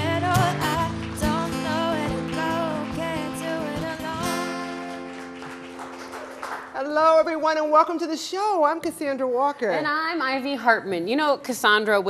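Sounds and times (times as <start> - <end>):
woman singing: 0.0 - 5.1
strummed ukulele and guitar: 0.0 - 5.7.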